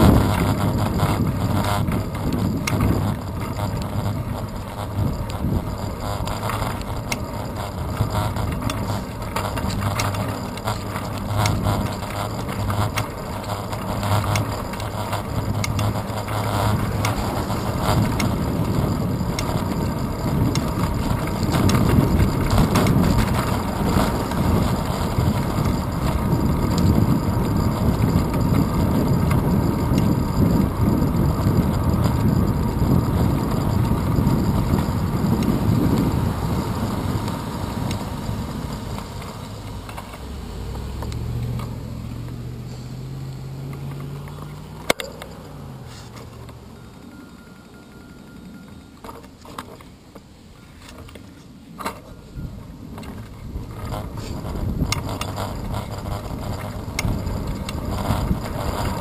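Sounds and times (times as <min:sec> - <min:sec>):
small rattling clicks: 0:00.0 - 0:42.4, 0:52.9 - 0:59.0
wind noise: 0:00.0 - 0:44.2, 0:50.3 - 0:59.0
road rumble: 0:00.0 - 0:59.0.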